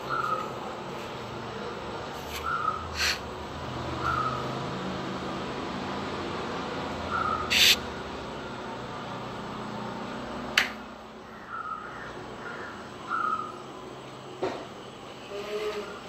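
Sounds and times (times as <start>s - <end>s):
squeaky animal calls: 2.5s - 3.2s, 7.2s - 7.8s
loud hiss: 3.0s - 3.2s, 7.5s - 7.8s.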